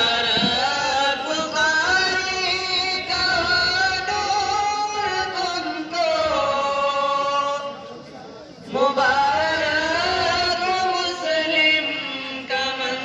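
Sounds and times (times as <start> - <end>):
person chanting: 8.7 - 13.0.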